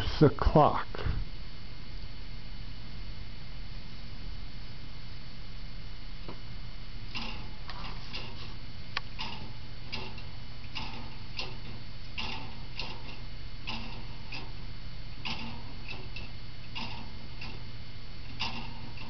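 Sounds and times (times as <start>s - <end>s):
clock escapement ticking: 9.1s - 14.6s, 15.2s - 17.6s, 18.3s - 19.0s.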